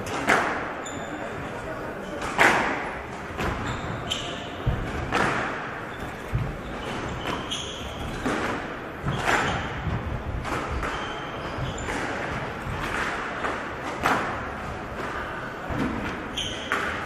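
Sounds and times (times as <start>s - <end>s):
squash ball hits echoing: 0.0s - 0.8s, 2.1s - 17.0s
shoes squeaking on wooden floor: 3.4s - 13.8s, 15.2s - 17.0s.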